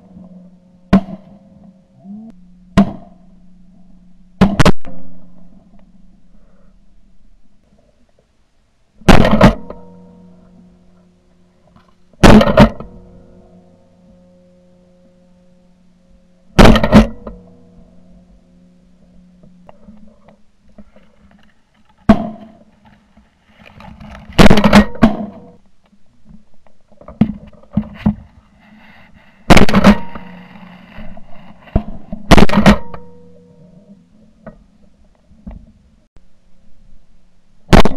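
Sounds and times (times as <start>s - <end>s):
shotgun blasts: 9.0s - 9.8s, 29.5s - 30.1s.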